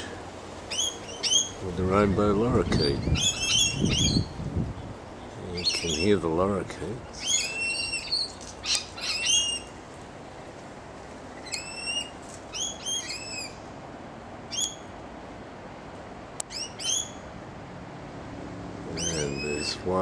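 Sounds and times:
lorikeets screeching: 0:00.7 - 0:01.6, 0:02.4 - 0:04.4, 0:05.6 - 0:06.2, 0:07.0 - 0:09.8, 0:11.4 - 0:13.7, 0:14.5 - 0:14.9, 0:16.5 - 0:17.3, 0:18.9 - 0:20.0.

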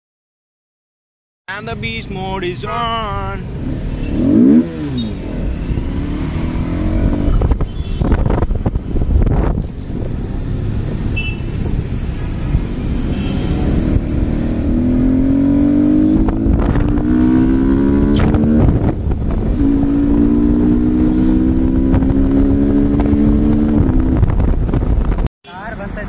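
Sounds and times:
motorcycle engine accelerating: 0:03.5 - 0:25.2
wind rumble on microphone: 0:07.0 - 0:25.3.

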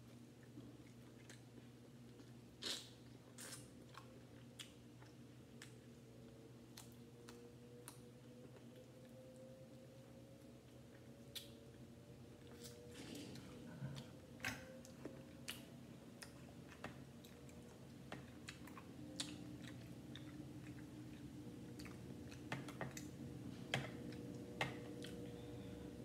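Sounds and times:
faint steady hum: 0:00.0 - 0:26.0
chewing and mouth clicks: 0:00.4 - 0:09.2, 0:09.9 - 0:11.8, 0:12.4 - 0:23.2
food clicking and squishing in bowl: 0:14.4 - 0:25.2.

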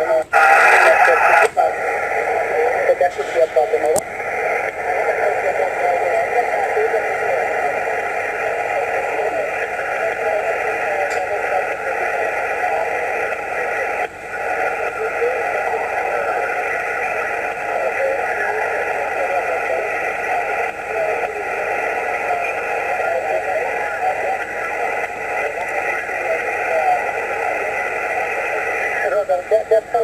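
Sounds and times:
radio static hiss: 0:00.0 - 0:30.0.

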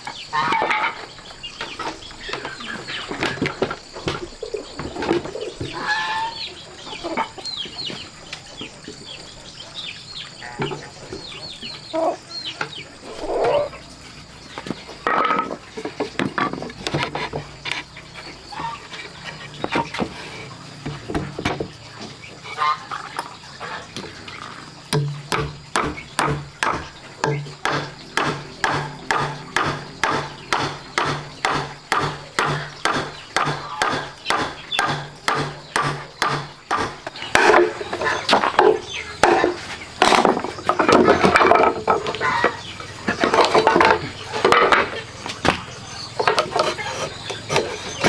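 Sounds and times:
irregular wood knocks: 0:20.8 - 0:22.2, 0:24.9 - 0:45.6
hammer driving nail into wood: 0:27.6 - 0:37.5.

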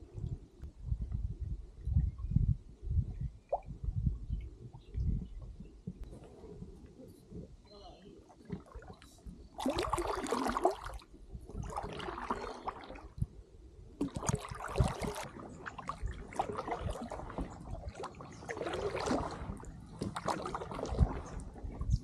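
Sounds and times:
kayak paddle strokes splashing: 0:08.4 - 0:13.1, 0:14.0 - 0:21.8.

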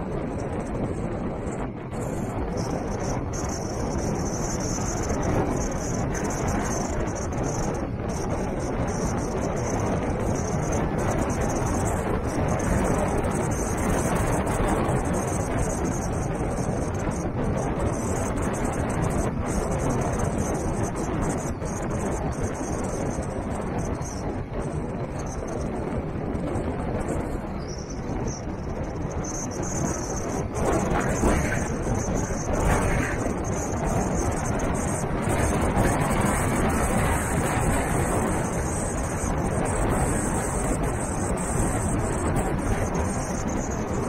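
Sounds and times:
vehicle driving on dirt track: 0:00.0 - 0:44.0
vehicle engine running: 0:27.0 - 0:44.0
tyres on wet dirt road: 0:30.1 - 0:34.1.

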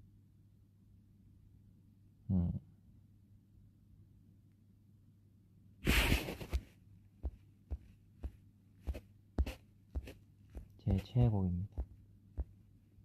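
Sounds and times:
faint steady hum: 0:00.0 - 0:13.0
soft low thumps: 0:07.2 - 0:12.6.

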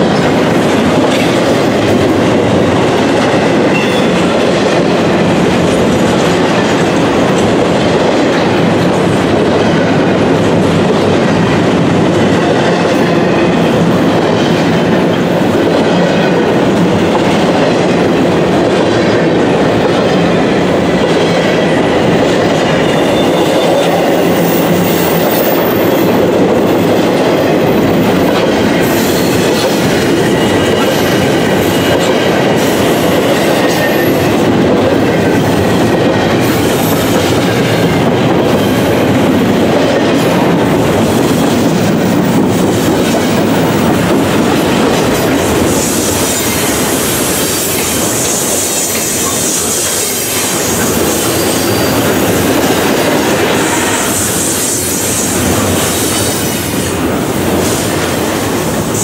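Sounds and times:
freight train rumbling: 0:00.0 - 0:59.0
wheels clacking on rails: 0:00.0 - 0:59.0
high-pitched wheel squeal: 0:51.2 - 0:52.1.

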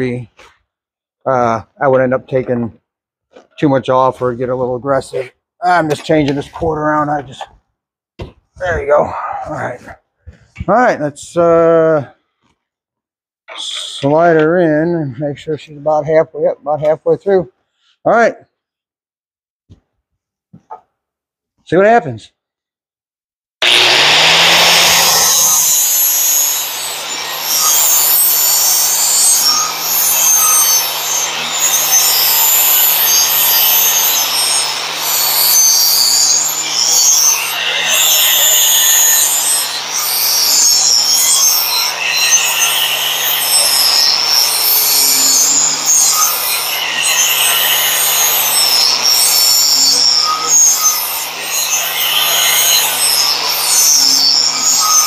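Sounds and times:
angle grinder whine: 0:23.6 - 0:55.0
grinder grinding steel blade: 0:23.6 - 0:55.0.

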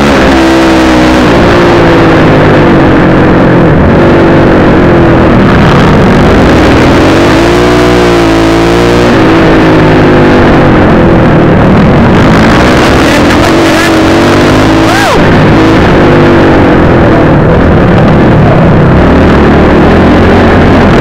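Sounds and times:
dirt bike engine running hard: 0:00.0 - 0:21.0.

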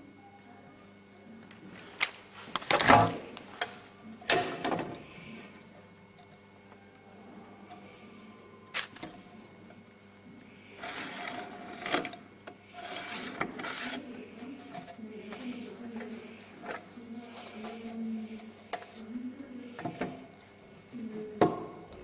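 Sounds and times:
soft rubbing and handling: 0:05.0 - 0:21.4.

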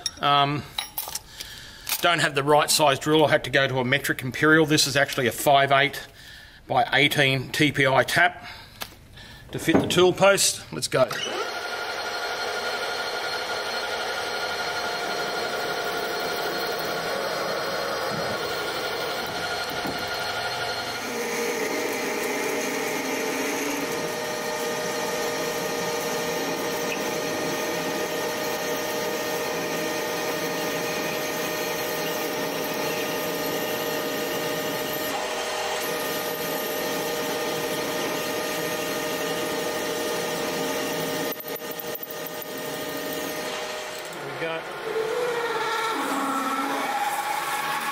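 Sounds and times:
drill boring into metal: 0:11.1 - 0:47.9
metal lathe whining: 0:11.1 - 0:47.9.

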